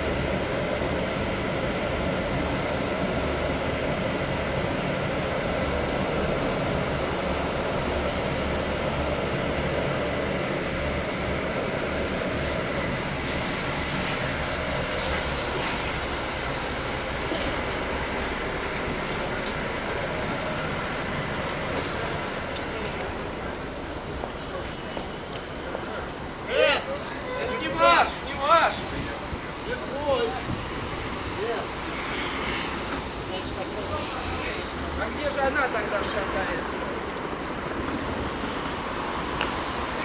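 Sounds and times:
bus engine and road noise: 0.0s - 40.0s
compressed air hiss: 13.2s - 17.7s.

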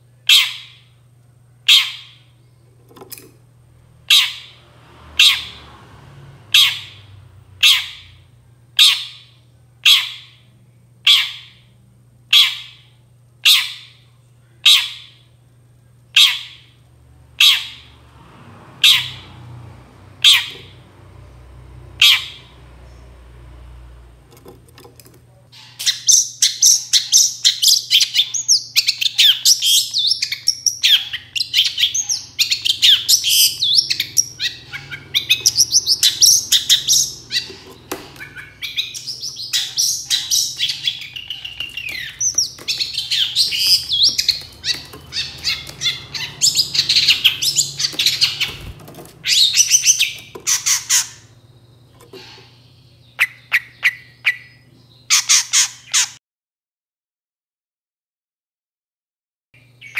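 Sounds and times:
bird chattering song: 0.3s - 1.0s, 1.7s - 2.6s, 4.1s - 4.6s, 6.6s - 8.2s, 8.8s - 10.4s, 11.0s - 11.7s, 12.3s - 14.0s, 14.6s - 15.3s, 16.1s - 16.8s, 17.4s - 18.0s, 20.2s - 20.8s, 22.0s - 23.2s, 25.5s - 56.2s.

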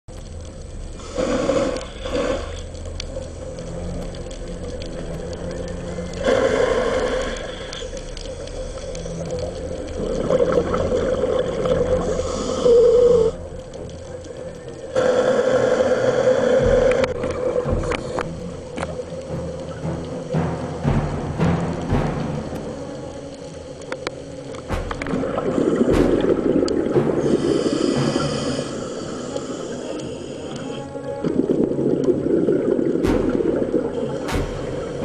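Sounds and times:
underwater low rumble: 0.1s - 15.0s, 16.2s - 35.0s
diver's exhaled bubbles gurgling: 9.1s - 13.4s, 24.7s - 29.9s.

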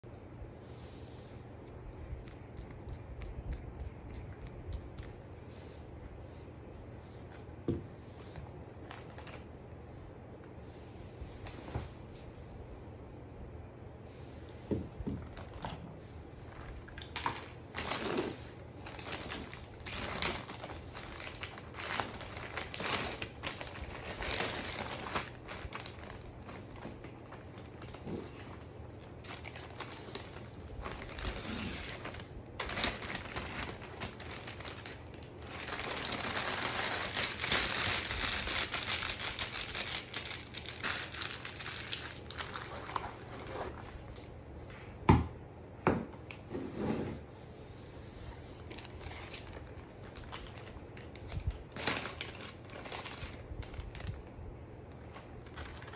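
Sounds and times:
plastic bags crinkling: 8.8s - 9.5s, 16.5s - 43.8s, 48.6s - 54.3s, 54.9s - 55.9s.

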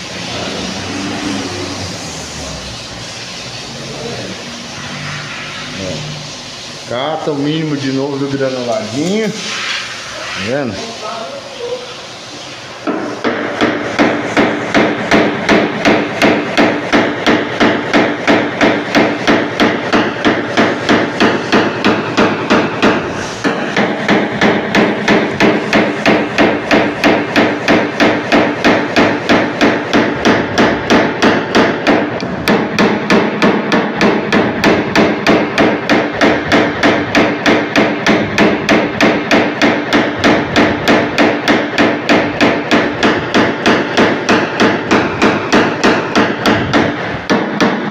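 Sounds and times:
hammer tapping punch on sheet metal: 12.8s - 47.9s.

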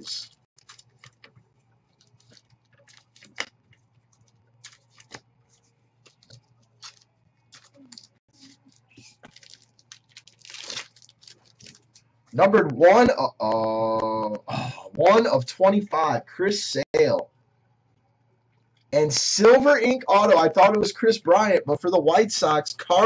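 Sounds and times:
cards rustling and sliding: 0.6s - 1.4s, 2.0s - 12.0s.

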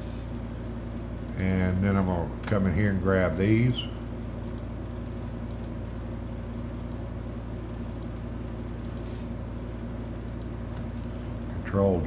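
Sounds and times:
electrical hum and hiss: 0.0s - 12.0s.

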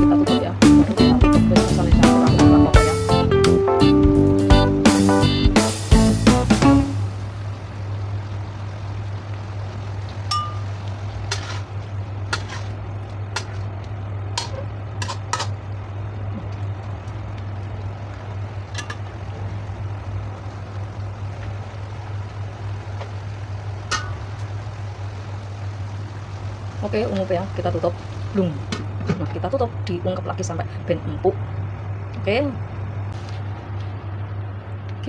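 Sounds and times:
steady low hum: 0.0s - 35.0s
metal spatula scraping wok: 11.2s - 13.7s.

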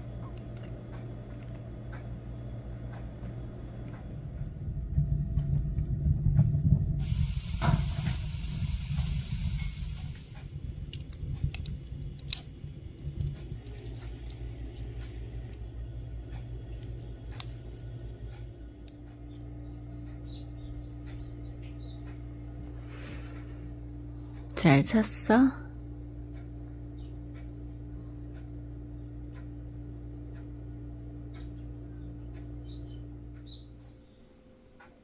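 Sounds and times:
fire crackling and popping: 0.1s - 22.0s
rush of flame: 4.2s - 18.7s
hiss: 6.9s - 10.5s.

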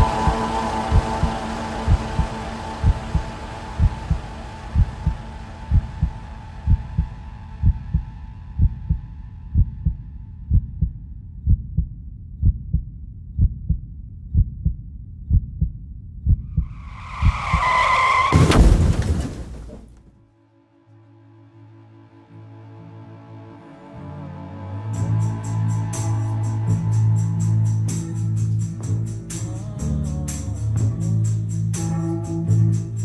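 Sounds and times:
heartbeat double thump: 0.0s - 4.2s, 4.8s - 9.0s, 9.6s - 17.6s
music: 0.0s - 12.2s, 20.2s - 33.0s
tyre screech: 16.7s - 19.8s
loud crash: 16.7s - 20.1s.

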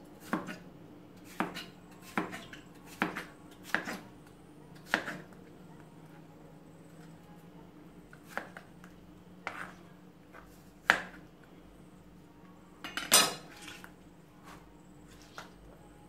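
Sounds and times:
knife chopping on cutting board: 0.2s - 0.6s, 1.3s - 4.0s, 4.8s - 5.3s.

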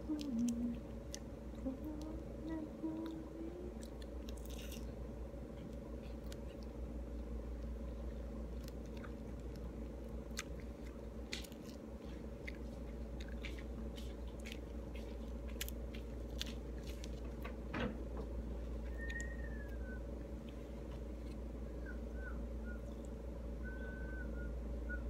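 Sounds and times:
low hum: 0.0s - 25.0s
wet mouth chewing smacks: 5.6s - 17.3s.

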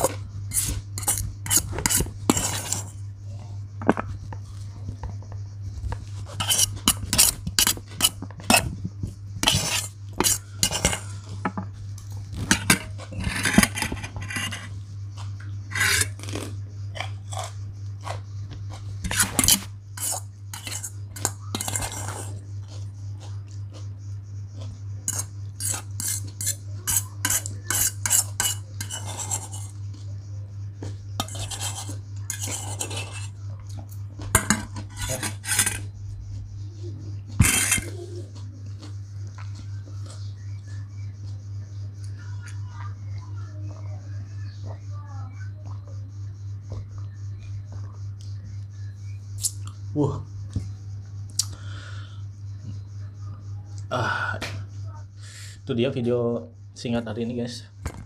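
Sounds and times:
fork scraping metal bowl: 0.0s - 3.0s, 6.1s - 8.8s, 9.4s - 11.6s, 12.3s - 14.8s, 15.7s - 16.4s, 19.0s - 22.8s, 25.0s - 30.0s, 31.2s - 33.4s, 34.3s - 35.9s, 37.4s - 38.2s
steady low hum: 0.0s - 58.0s.

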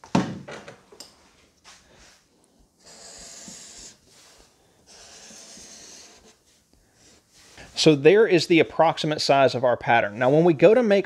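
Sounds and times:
marker scratching on paper: 2.8s - 7.6s.

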